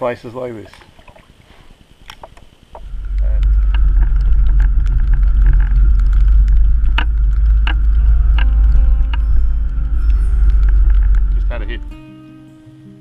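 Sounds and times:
knocks and rattles: 0:02.2 - 0:11.9
vehicle rumble on dirt track: 0:02.8 - 0:12.0.

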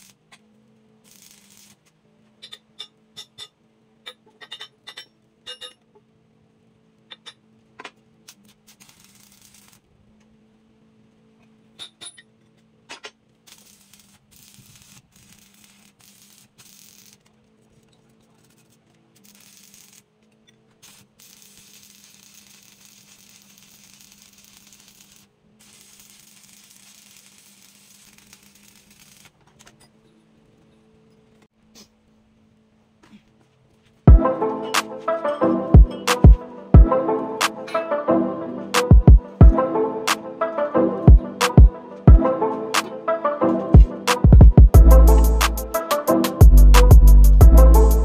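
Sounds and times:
arc welder crackling and hissing: 0:00.0 - 0:02.6, 0:06.9 - 0:11.9, 0:12.9 - 0:29.8, 0:44.1 - 0:48.0.

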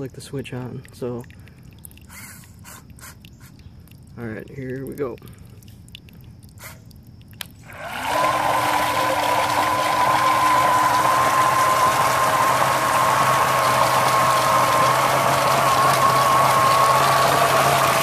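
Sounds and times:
water splashing from chute: 0:00.0 - 0:18.0
electric motor whine: 0:07.6 - 0:18.0.

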